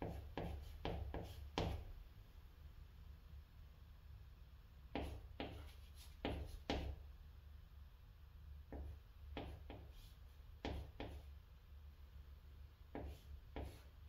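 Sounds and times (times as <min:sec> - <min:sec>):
chalk tapping and scratching on chalkboard: 0:00.0 - 0:01.9, 0:04.9 - 0:07.0, 0:08.7 - 0:11.4, 0:12.9 - 0:14.0.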